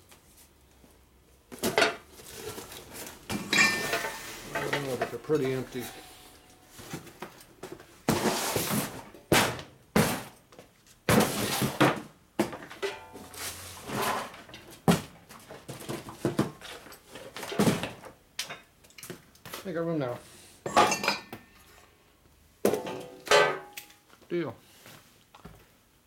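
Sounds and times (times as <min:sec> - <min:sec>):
metal tools clattering on workbench: 0:01.6 - 0:07.1, 0:12.6 - 0:13.4, 0:20.6 - 0:21.8.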